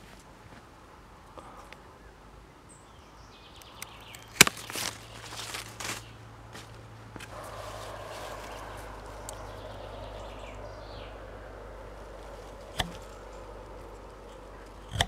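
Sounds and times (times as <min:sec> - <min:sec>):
pruning shears snapping stem: 0:03.7 - 0:05.6, 0:12.1 - 0:15.0
shears snipping: 0:03.7 - 0:06.1, 0:12.0 - 0:15.0
rustling: 0:04.3 - 0:15.0.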